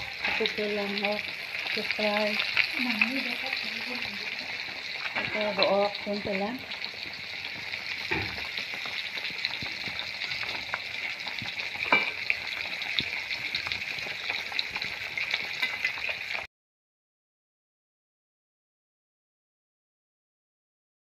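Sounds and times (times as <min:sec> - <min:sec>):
fish frying in hot oil: 0:00.0 - 0:16.5
oil popping: 0:00.0 - 0:16.5.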